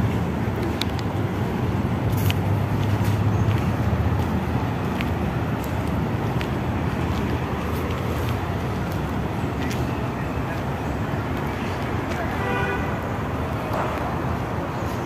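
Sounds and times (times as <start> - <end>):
road traffic rumble: 0.0 - 15.0
light clicks: 0.6 - 1.2.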